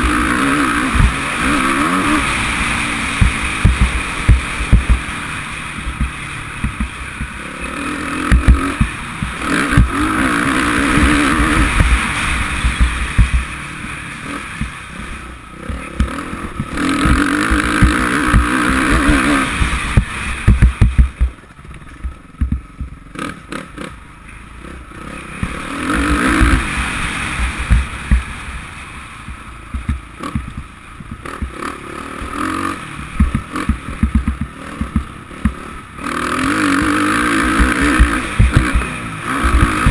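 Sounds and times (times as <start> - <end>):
motorcycle engine revving: 0.0 - 39.9
bike knocking on rough ground: 3.2 - 5.1, 5.7 - 7.4, 8.2 - 10.2, 10.9 - 13.5, 15.6 - 23.0, 27.6 - 28.3, 29.3 - 31.6, 33.2 - 35.6, 36.8 - 39.9.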